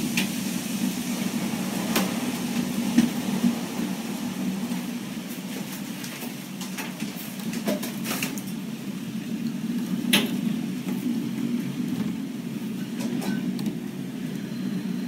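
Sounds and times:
storm wind rumble: 0:00.0 - 0:15.0.

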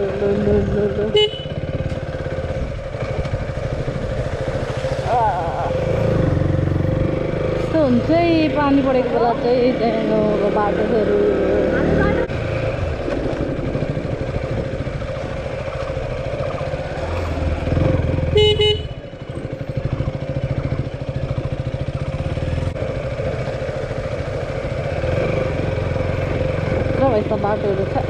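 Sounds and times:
motorcycle engine running: 0:00.0 - 0:28.0
horn beep: 0:01.1 - 0:01.6, 0:18.3 - 0:19.0.

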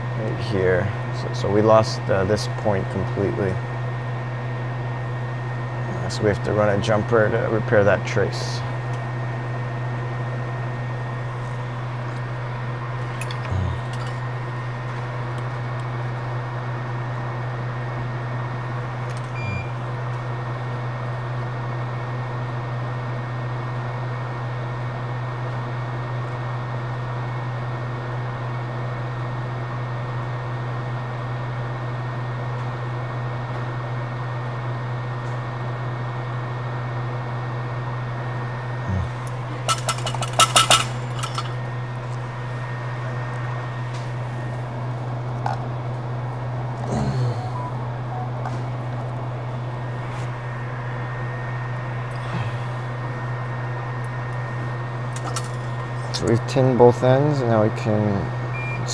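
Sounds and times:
equipment low drone: 0:00.0 - 0:22.1, 0:37.8 - 0:58.9
light clicks and clinks: 0:39.7 - 0:41.5.

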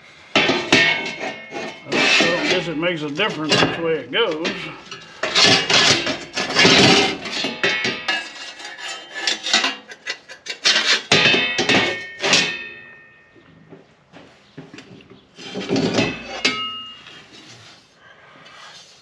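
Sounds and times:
metal panels clanking and scraping: 0:00.3 - 0:13.0, 0:15.4 - 0:17.6
ringing metal clang: 0:00.4 - 0:09.0, 0:11.1 - 0:13.5, 0:15.8 - 0:17.2.

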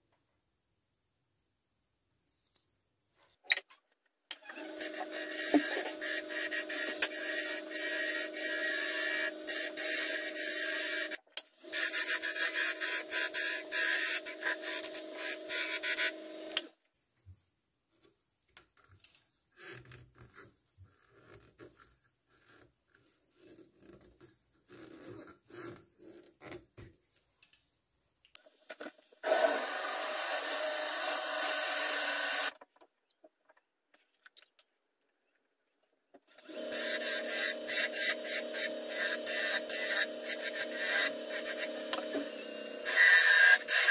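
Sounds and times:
turning tool scraping wood: 0:04.5 - 0:11.1, 0:11.7 - 0:16.7, 0:36.4 - 0:43.9
wood lathe humming: 0:04.5 - 0:11.2, 0:11.8 - 0:16.7, 0:29.3 - 0:32.5, 0:36.4 - 0:43.9.

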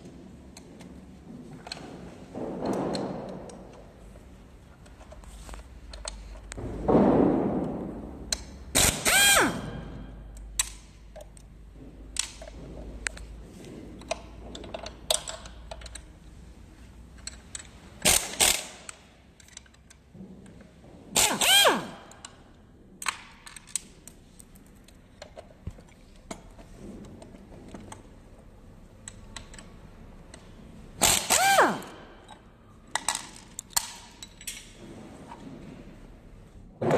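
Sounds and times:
drill-driver motor whine: 0:08.8 - 0:09.6, 0:21.2 - 0:22.0, 0:31.0 - 0:32.0.

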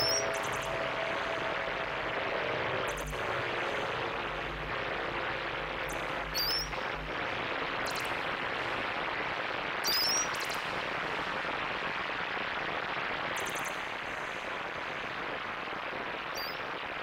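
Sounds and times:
low bass notes: 0:00.0 - 0:09.6
synthesized water noise wash: 0:00.0 - 0:17.0.

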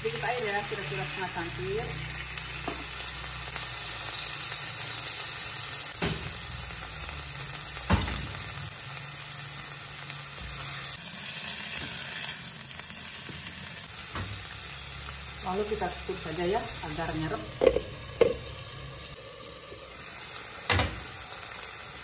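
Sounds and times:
food sizzling in a frying pan: 0:00.0 - 0:22.0.

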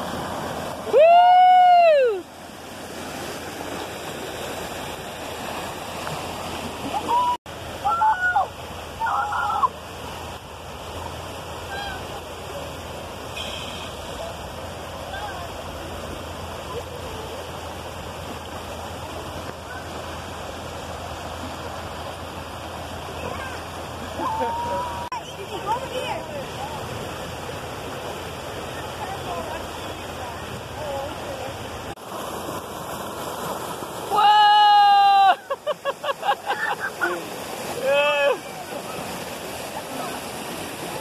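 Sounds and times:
river rapid rushing over rocks: 0:00.0 - 0:41.0
person yelling: 0:24.2 - 0:25.1, 0:34.1 - 0:35.5.

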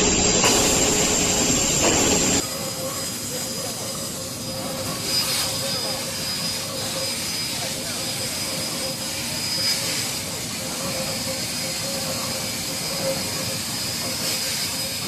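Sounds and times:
steady hum: 0:00.0 - 0:02.4
cutting torch hissing: 0:00.0 - 0:03.4.

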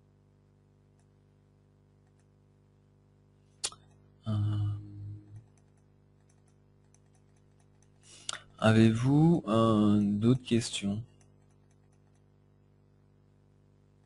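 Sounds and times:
steady low hum: 0:00.0 - 0:14.0
mouse and keyboard clicks: 0:05.4 - 0:08.0, 0:11.2 - 0:12.3.

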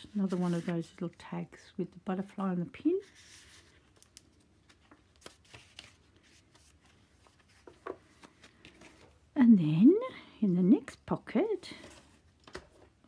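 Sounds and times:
paper rustling: 0:00.0 - 0:01.4, 0:02.9 - 0:09.2.

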